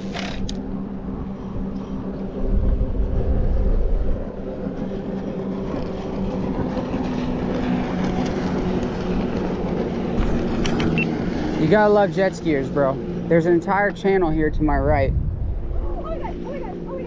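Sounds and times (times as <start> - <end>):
jet ski engine running: 0.0 - 17.0
wind buffeting microphone: 0.6 - 17.0.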